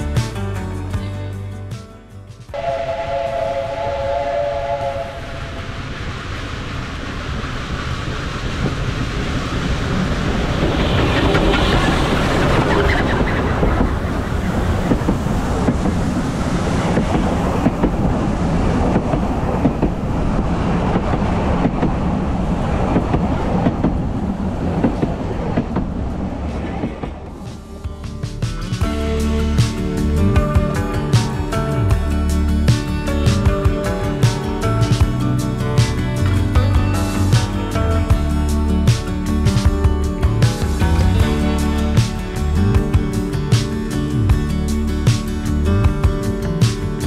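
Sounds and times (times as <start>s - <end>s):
steam train whistle: 2.5s - 6.1s
train carriages rumbling over rails: 2.5s - 47.0s.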